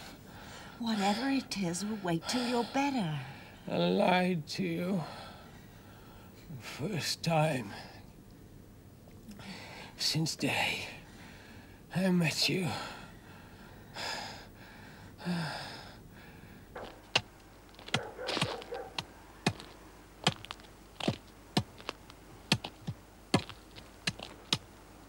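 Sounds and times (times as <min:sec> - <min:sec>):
man gasping breaths: 0:12.8 - 0:16.7
walking stick tapping on ground: 0:16.8 - 0:24.7.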